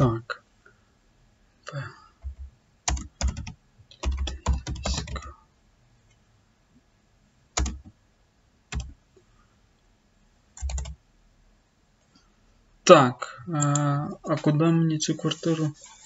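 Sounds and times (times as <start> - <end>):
typing on keyboard: 2.2 - 5.3, 7.6 - 7.9, 8.7 - 9.0, 10.6 - 11.0.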